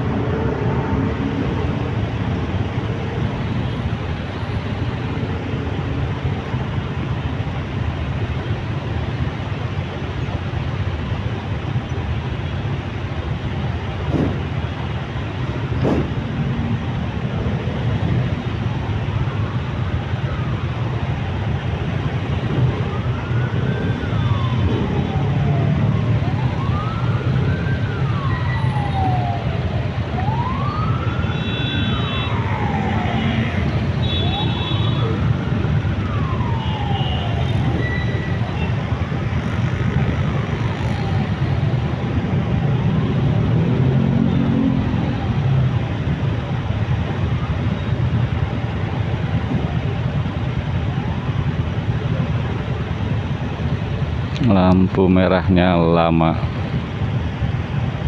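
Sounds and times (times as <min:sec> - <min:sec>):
traffic rumble: 0:00.0 - 0:58.0
emergency siren wailing: 0:13.8 - 0:54.1.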